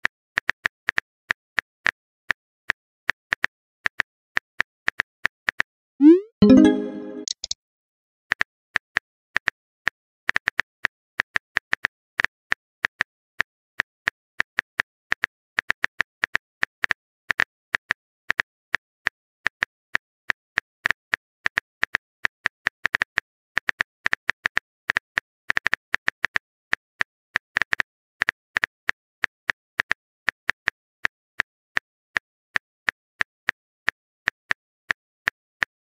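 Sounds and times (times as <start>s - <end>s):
phone keyboard typing clicks: 6.4s - 7.6s.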